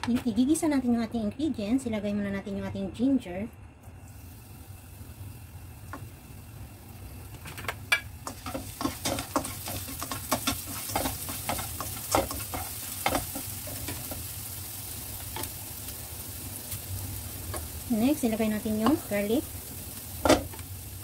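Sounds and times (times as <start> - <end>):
ginger sizzling in hot oil: 3.9 - 21.0
spatula scraping and clicking: 8.2 - 14.2.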